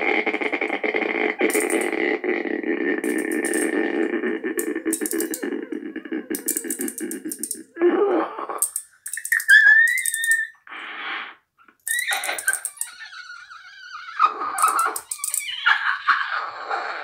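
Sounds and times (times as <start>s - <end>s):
mouth clicks: 0.4s - 2.2s, 3.0s - 13.0s
squeaky whistle-like mouth tones: 9.1s - 11.1s.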